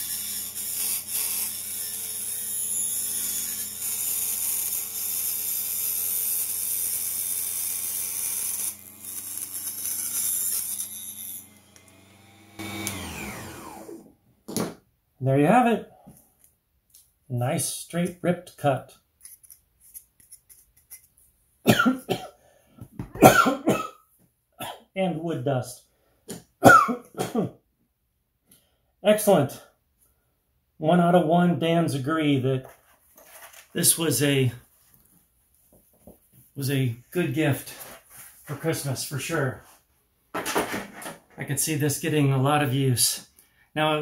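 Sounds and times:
table saw cutting wood: 0:00.0 - 0:14.2
man coughing: 0:21.7 - 0:22.4, 0:23.2 - 0:24.0, 0:26.6 - 0:27.6.

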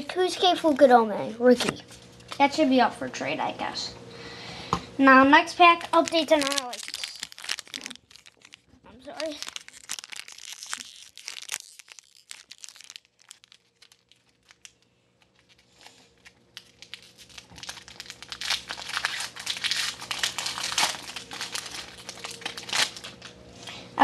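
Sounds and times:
foil wrapper crinkling: 0:05.7 - 0:23.7.

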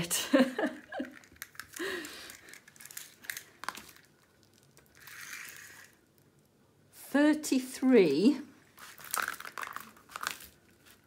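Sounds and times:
plastic film crinkling: 0:01.0 - 0:06.5, 0:08.7 - 0:11.0.

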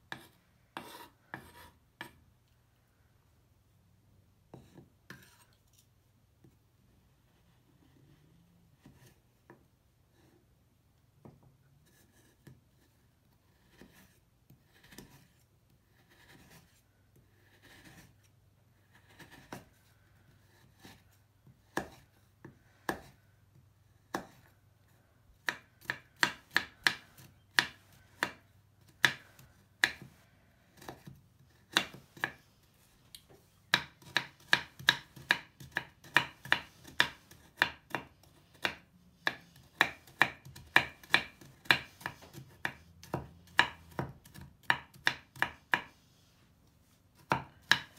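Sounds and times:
knife chopping on wooden board: 0:20.6 - 0:22.1, 0:22.9 - 0:23.2, 0:24.0 - 0:24.5, 0:25.4 - 0:32.4, 0:33.7 - 0:46.0, 0:47.2 - 0:47.9.

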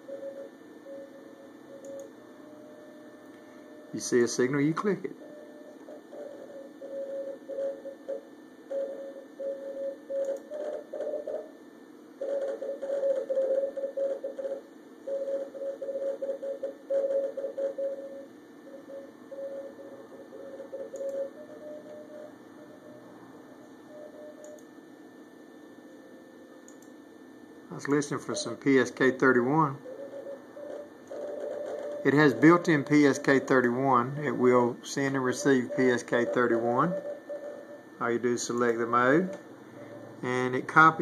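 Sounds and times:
morse code tone beeping: 0:12.2 - 0:23.1, 0:28.2 - 0:41.0.

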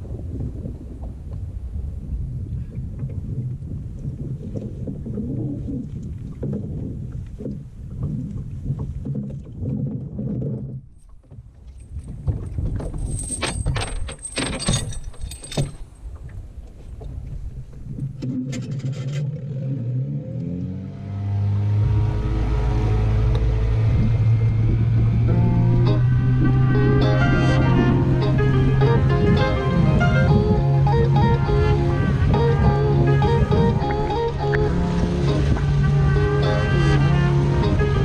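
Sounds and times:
metallic clicks and rattles: 0:12.8 - 0:15.9
outboard motor running: 0:21.6 - 0:38.0.

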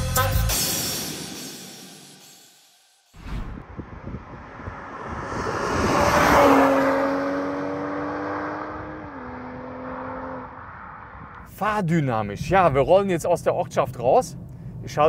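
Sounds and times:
car engine accelerating past: 0:03.2 - 0:11.5.

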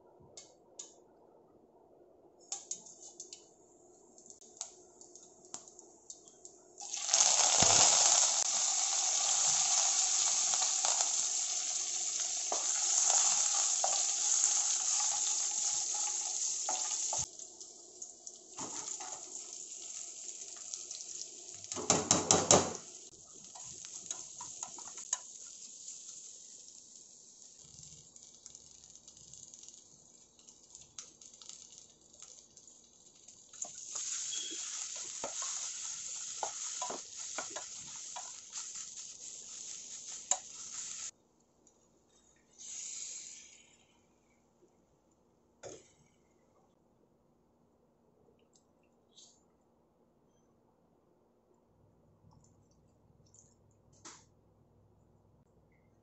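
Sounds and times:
loud sizzle of hot oil: 0:06.8 - 0:41.2, 0:42.6 - 0:43.9.

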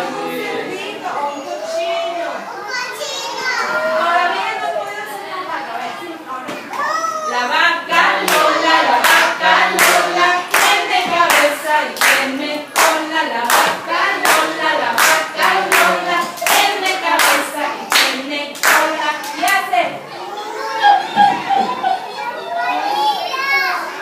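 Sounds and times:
group singing a children's song: 0:00.0 - 0:02.3, 0:03.8 - 0:05.1, 0:07.3 - 0:22.1
hand-clapping: 0:08.2 - 0:19.6.

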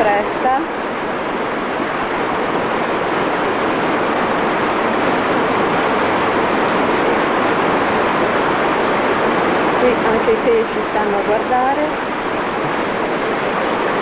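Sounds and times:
river water rushing: 0:00.0 - 0:14.0.

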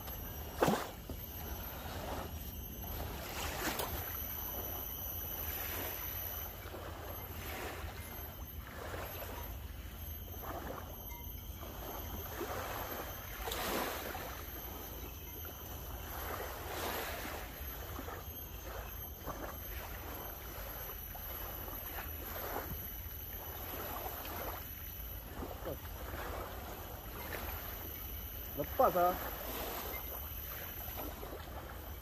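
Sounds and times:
waves washing on shore: 0:15.9 - 0:32.0.

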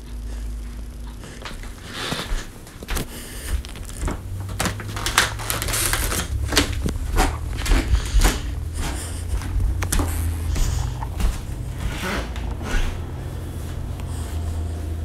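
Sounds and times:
footsteps: 0:00.1 - 0:15.0
low rumble: 0:03.6 - 0:15.0.

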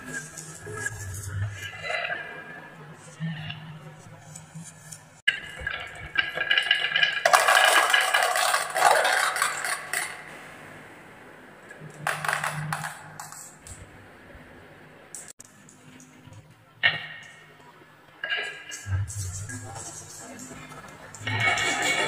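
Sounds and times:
marbles clicking on wooden run: 0:06.2 - 0:10.3, 0:12.0 - 0:13.6.

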